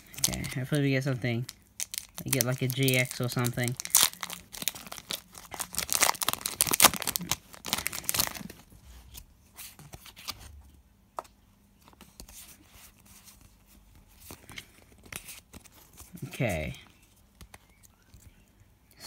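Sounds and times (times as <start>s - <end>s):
cards rustling: 0.0s - 10.4s
foil pack tearing and crinkling: 1.8s - 8.6s.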